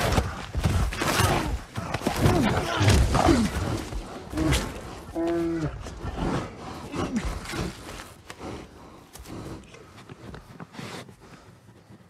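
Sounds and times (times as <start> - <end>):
bear snuffling and breathing: 3.5 - 12.0.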